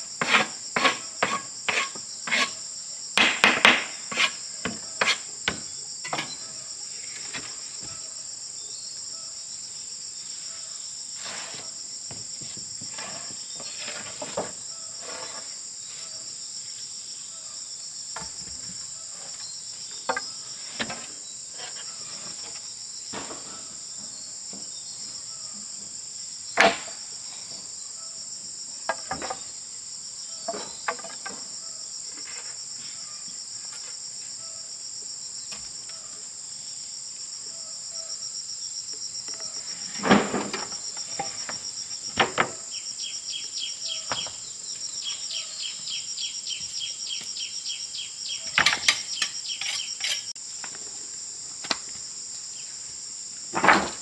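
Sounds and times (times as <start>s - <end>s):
high-pitched insect chorus: 0.0s - 54.0s.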